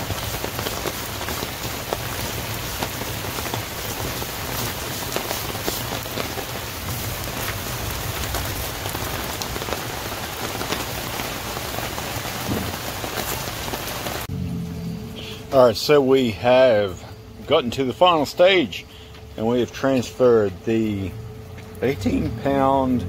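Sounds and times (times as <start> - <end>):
sharp raindrop ticks: 0.0 - 14.3
steady rain: 0.0 - 23.0.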